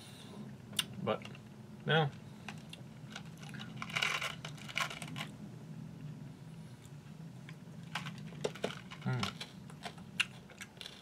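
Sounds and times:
candies rattling out of a box: 3.1 - 5.3, 7.9 - 10.0.

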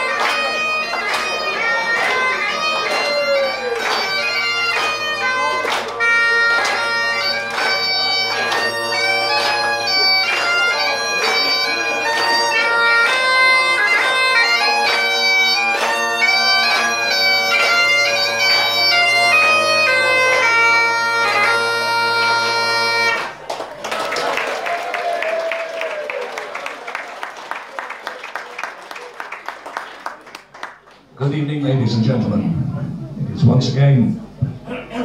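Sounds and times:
bagpipes playing a tune: 0.0 - 23.4.

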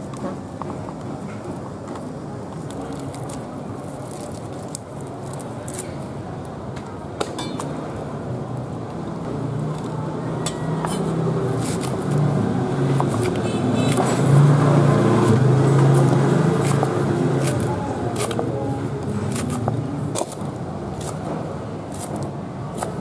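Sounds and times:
vehicle engine humming: 7.8 - 20.8.

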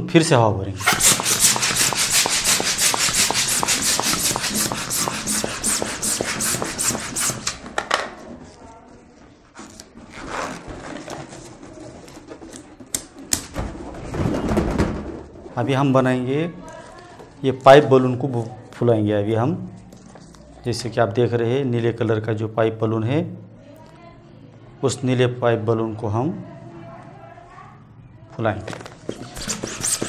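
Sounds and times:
balloon rubbing: 0.8 - 7.6, 28.9 - 30.0
clicks tying balloon: 0.8 - 7.6, 28.9 - 30.0
hand balloon pump strokes: 0.8 - 7.6, 28.9 - 30.0.

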